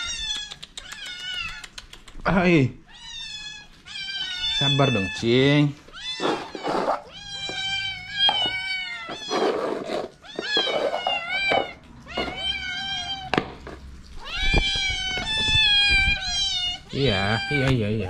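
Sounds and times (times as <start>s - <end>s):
cat meowing: 0.0s - 1.9s, 2.8s - 13.4s, 14.1s - 18.0s
person speaking: 4.6s - 6.9s, 16.9s - 18.0s.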